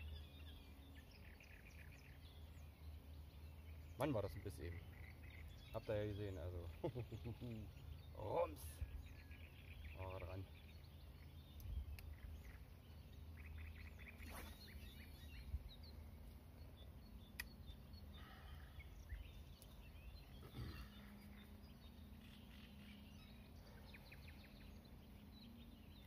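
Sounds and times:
faint bird chirps: 0.0 - 26.0
sharp clicks: 17.3 - 17.6.

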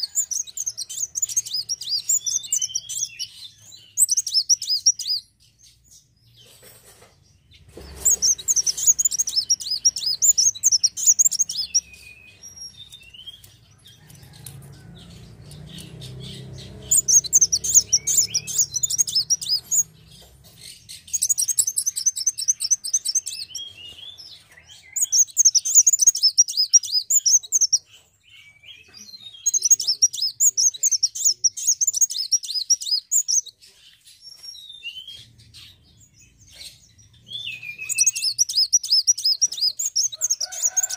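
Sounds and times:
bird twittering trills: 0.0 - 40.9.

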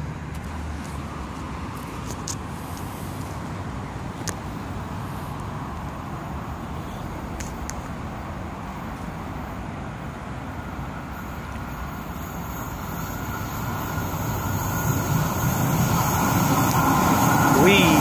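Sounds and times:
distant traffic rumble: 0.0 - 18.0
metro train approaching: 8.0 - 18.0
faint high whine: 10.4 - 18.0.

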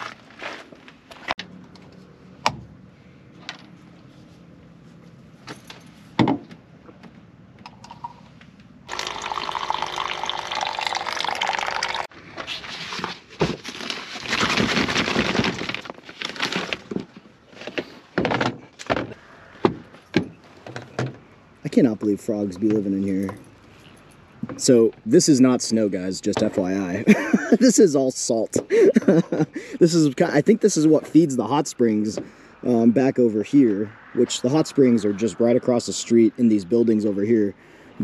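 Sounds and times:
electric water pump running: 8.9 - 12.0
water pouring into bowl: 8.9 - 12.1.

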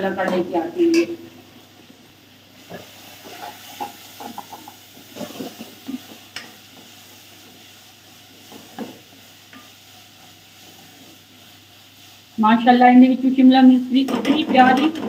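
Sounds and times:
frying sizzle: 0.0 - 15.0.

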